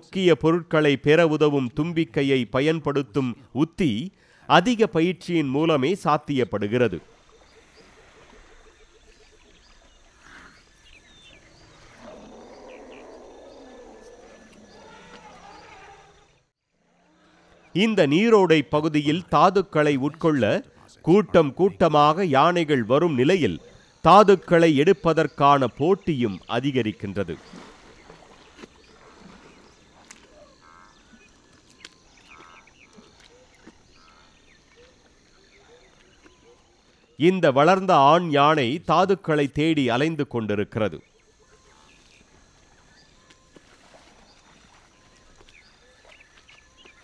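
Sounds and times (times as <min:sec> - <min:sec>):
birds chirping: 0:00.7 - 0:47.0
insects buzzing: 0:05.6 - 0:16.5, 0:17.5 - 0:37.3, 0:40.8 - 0:47.0
elephant roaring: 0:11.4 - 0:16.4
rattling calls: 0:27.4 - 0:36.4.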